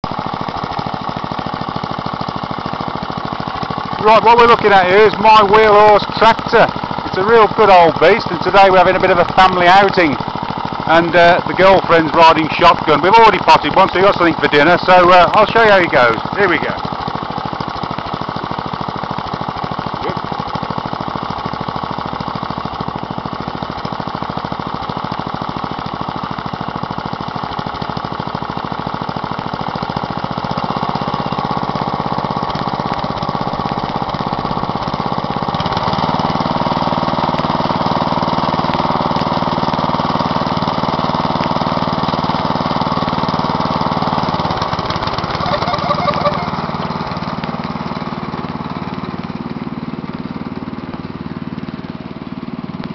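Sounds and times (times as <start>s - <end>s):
tractor engine running: 0.0s - 52.9s.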